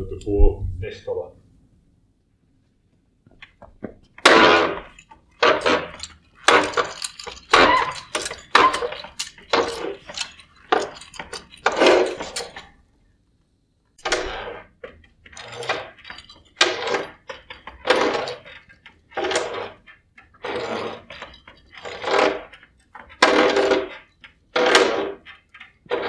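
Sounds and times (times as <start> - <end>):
hand auger boring through wood: 4.2 - 11.0, 15.3 - 26.0.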